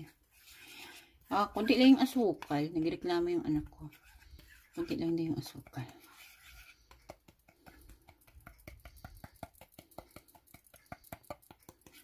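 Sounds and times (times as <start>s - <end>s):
stick scraping metal ladle: 0.0s - 2.7s, 3.4s - 9.4s.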